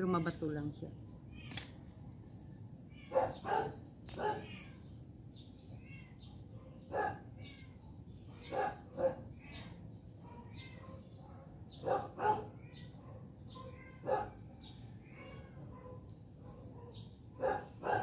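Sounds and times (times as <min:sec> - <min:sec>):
dog barking: 0:03.1 - 0:04.5, 0:06.6 - 0:07.3, 0:08.5 - 0:09.3, 0:10.2 - 0:14.4, 0:15.7 - 0:18.0.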